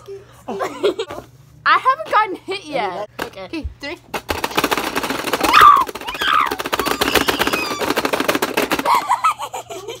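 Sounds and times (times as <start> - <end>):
rapid plastic clicking of toy buttons: 4.2 - 9.1.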